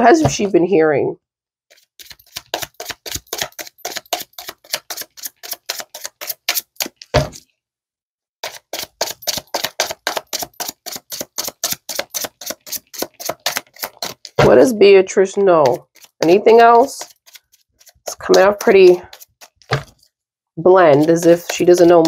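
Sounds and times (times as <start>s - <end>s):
cards being shuffled: 1.7s - 7.4s, 8.4s - 14.7s, 15.6s - 20.1s, 20.9s - 22.0s.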